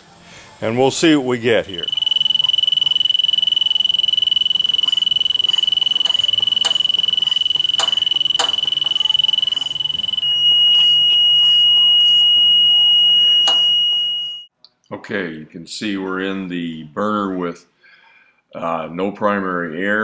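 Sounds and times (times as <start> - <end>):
high-pitched detector alarm: 1.7 - 14.5.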